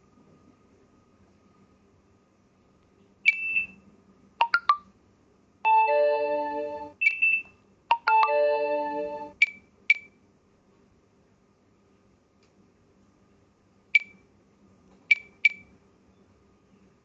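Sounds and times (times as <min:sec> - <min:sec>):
electronic beeps: 0:03.3 - 0:03.8, 0:05.7 - 0:10.0
sustained chord-like tones: 0:05.7 - 0:07.0, 0:08.2 - 0:09.3.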